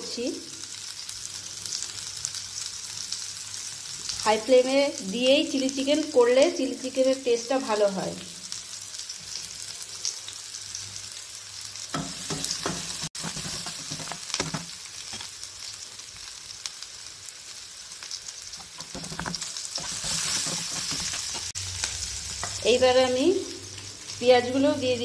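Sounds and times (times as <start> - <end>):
vegetables sizzling in hot oil: 0.0 - 25.0
spoon scraping and clacking pan: 11.9 - 15.3, 18.6 - 21.6.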